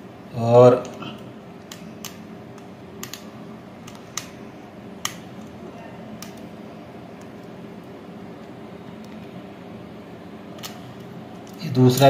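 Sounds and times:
steady low hum: 0.0s - 12.0s
small plastic clicks: 1.6s - 4.4s.

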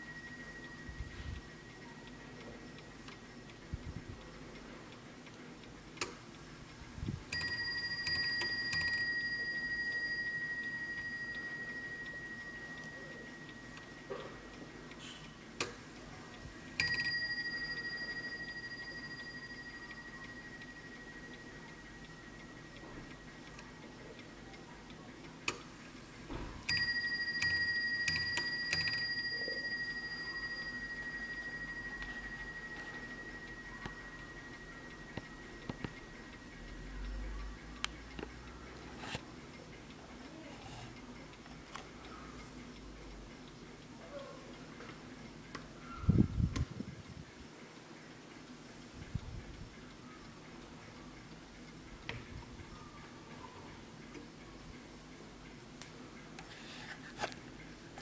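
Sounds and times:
clock ticking: 0.0s - 58.0s
clock striking on bell: 7.3s - 14.8s, 16.8s - 23.4s, 26.6s - 37.1s.

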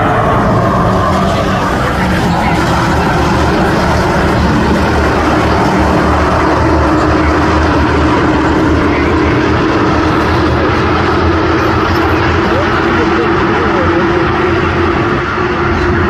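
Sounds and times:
racing car engines droning: 0.0s - 16.0s.

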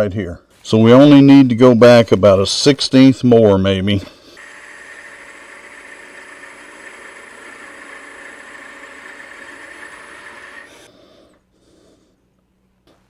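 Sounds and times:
lathe tool scraping wood: 4.4s - 10.9s.

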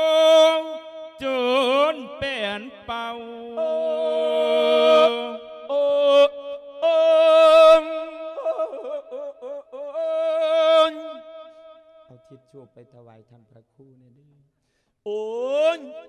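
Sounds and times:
man chanting through microphone: 0.0s - 9.1s, 12.1s - 14.4s, 15.1s - 16.0s.

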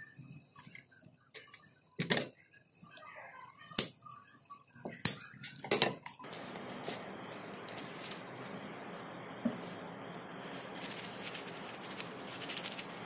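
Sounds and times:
dry seaweed crackling: 6.3s - 8.4s, 10.4s - 13.0s.

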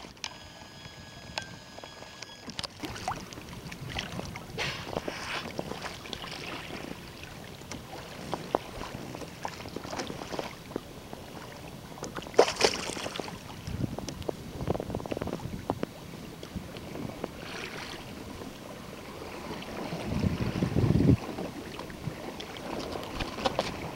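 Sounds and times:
water slapping against kayak hull: 2.5s - 23.9s.

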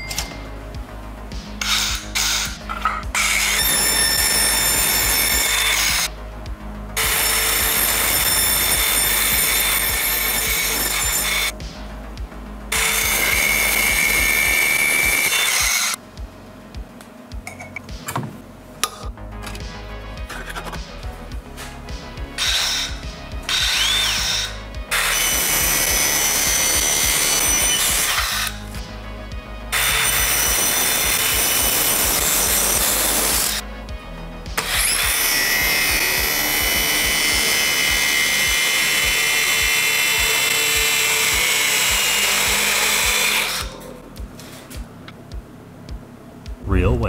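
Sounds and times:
high saw whine: 1.3s - 11.6s, 12.7s - 16.0s, 22.1s - 44.0s
circular saw cutting: 1.6s - 6.1s, 7.0s - 11.6s, 12.7s - 16.0s, 22.2s - 28.7s, 29.7s - 33.6s, 34.6s - 44.0s.

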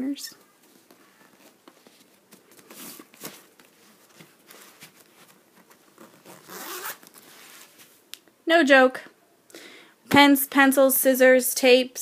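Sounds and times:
fabric bag rasps and rustles: 2.7s - 7.9s.

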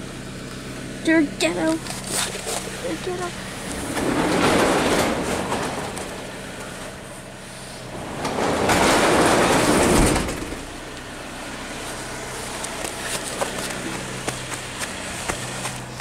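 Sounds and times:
car exhaust idling: 0.0s - 4.0s, 10.5s - 16.0s.

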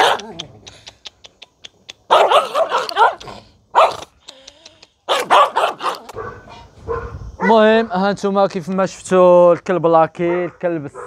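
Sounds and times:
small dog barking frantically: 0.0s - 0.4s, 2.1s - 4.1s, 5.1s - 7.6s.

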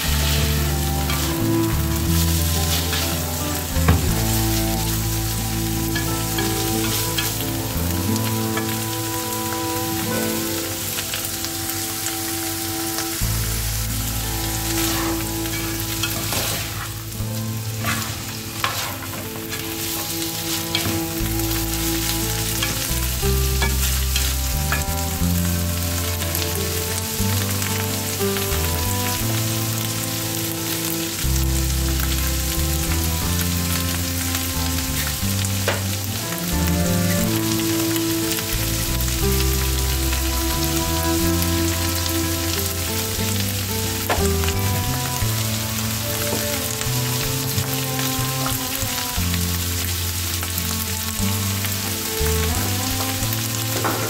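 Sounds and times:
food sizzling in a frying pan: 0.0s - 54.0s.

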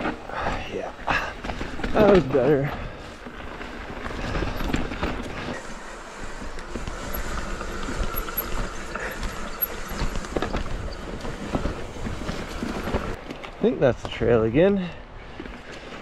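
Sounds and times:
bike tyres rolling over dirt: 0.0s - 16.0s
bike knocks and rattles: 6.8s - 14.2s.

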